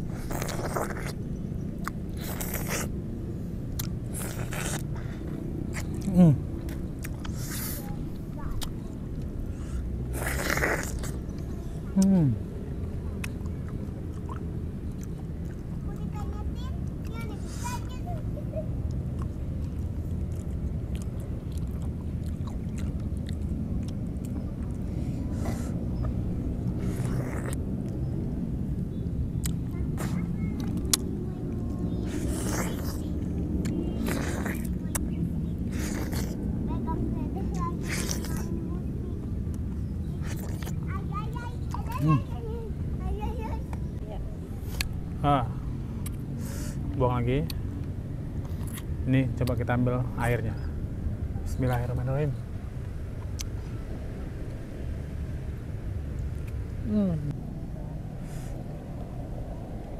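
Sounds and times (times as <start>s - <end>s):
slurping: 0.0s - 1.2s, 1.8s - 2.9s, 3.8s - 8.0s, 9.6s - 12.4s, 24.8s - 27.6s, 31.9s - 36.4s, 37.7s - 38.5s, 39.5s - 40.9s
wet mouth sounds biting fruit: 0.0s - 1.2s, 1.8s - 3.0s, 3.8s - 5.0s, 5.7s - 7.9s, 10.1s - 12.4s, 19.1s - 28.0s, 32.0s - 36.4s, 37.8s - 38.5s, 40.2s - 40.8s, 44.6s - 45.0s, 46.0s - 46.7s, 48.4s - 49.6s
chewing juicy orange: 0.0s - 42.4s, 43.6s - 49.6s, 52.8s - 54.6s
wet mouth clicks: 1.8s - 2.9s, 3.8s - 5.0s, 5.7s - 7.9s, 10.1s - 12.4s, 13.2s - 15.6s, 29.4s - 31.1s, 32.2s - 36.4s, 40.2s - 40.9s, 46.0s - 46.2s.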